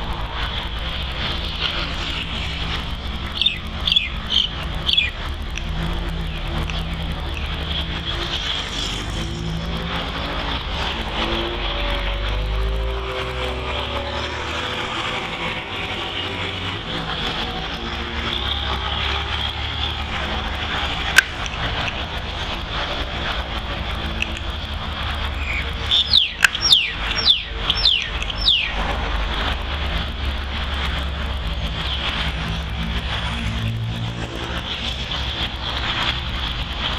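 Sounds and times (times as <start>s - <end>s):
distant engine hum: 0.0s - 36.9s
high falling whistles: 25.3s - 28.8s.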